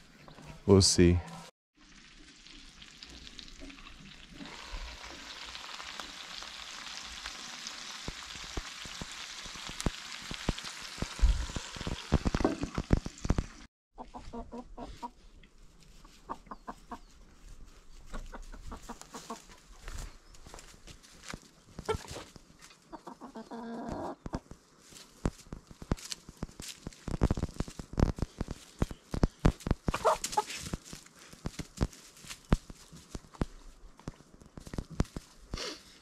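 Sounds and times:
chicken sizzling in skillet: 0:01.8 - 0:13.7
chickens clucking: 0:14.0 - 0:20.0, 0:21.8 - 0:24.5, 0:29.9 - 0:30.6.

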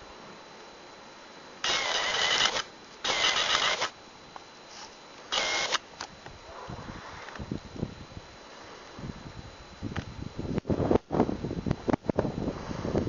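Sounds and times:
camcorder zoom motor whirring: 0:01.6 - 0:04.5, 0:05.3 - 0:06.2.

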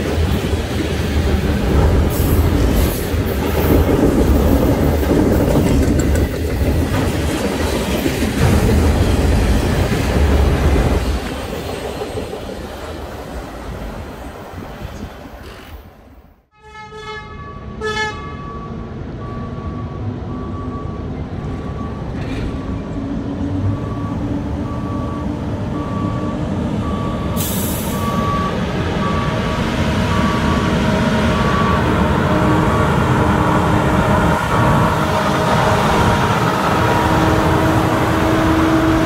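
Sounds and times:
horn toots: 0:16.5 - 0:18.5
truck engine and wheel noise: 0:18.2 - 0:39.0
back-up alarm beeping: 0:23.7 - 0:33.1.

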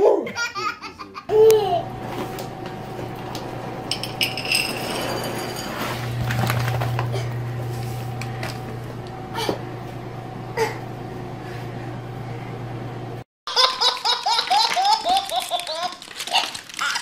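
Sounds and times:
baby laughing: 0:00.0 - 0:01.8, 0:13.5 - 0:17.0
steady low hum: 0:00.3 - 0:13.2.

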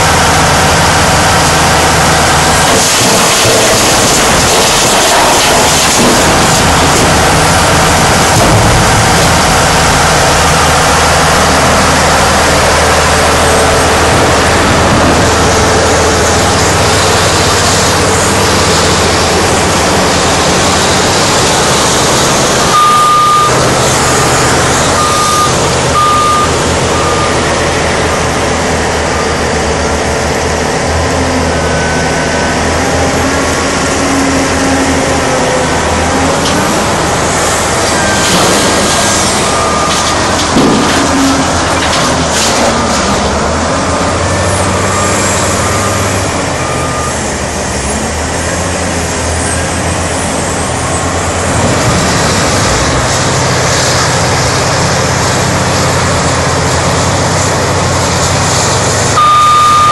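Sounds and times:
heavy diesel engine: 0:00.0 - 0:59.9
back-up alarm beeping: 0:22.7 - 0:27.4, 0:59.2 - 0:59.9.

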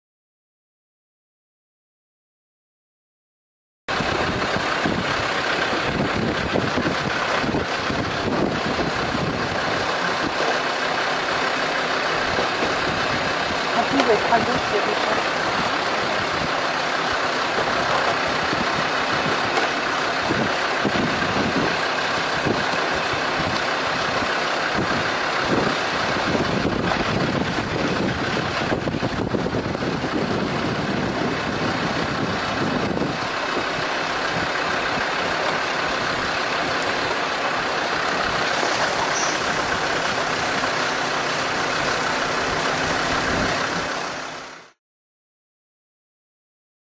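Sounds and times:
vehicle engine running: 0:03.9 - 0:44.8.

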